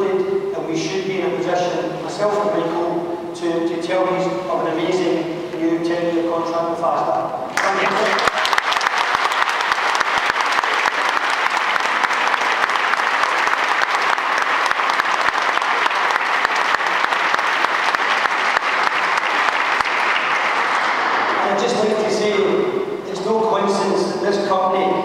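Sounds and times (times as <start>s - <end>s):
audience applause: 7.5s - 22.1s.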